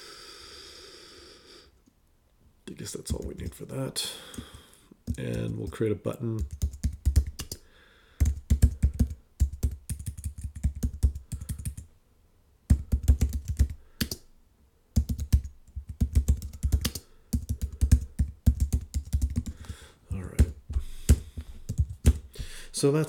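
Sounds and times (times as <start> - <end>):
computer keyboard typing: 4.3 - 5.8, 6.4 - 7.6, 8.2 - 11.9, 12.7 - 14.2, 15.0 - 22.3.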